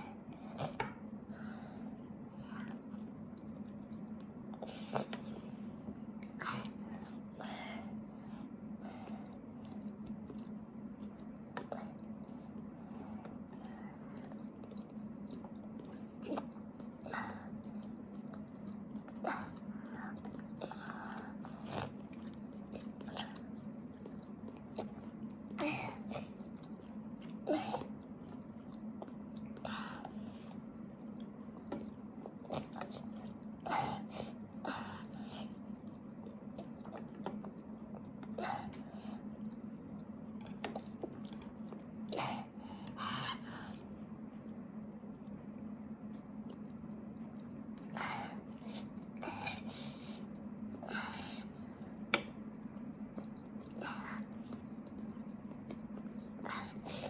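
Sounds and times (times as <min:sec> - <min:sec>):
low steady hum: 0:00.0 - 0:57.0.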